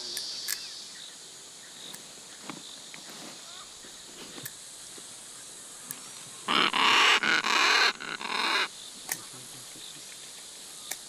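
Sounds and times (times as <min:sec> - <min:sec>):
macaw squawking harshly: 0:06.5 - 0:08.7.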